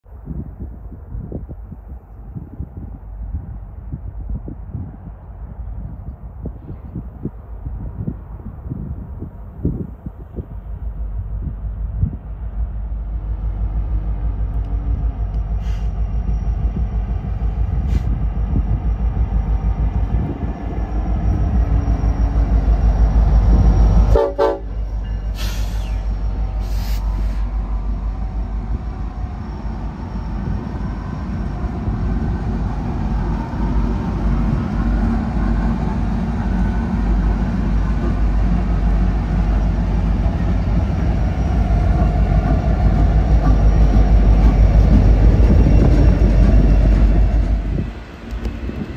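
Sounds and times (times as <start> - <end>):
diesel locomotive rumble: 0.1 - 48.9
train wheels on rails: 5.8 - 48.9
locomotive horn: 24.0 - 25.6.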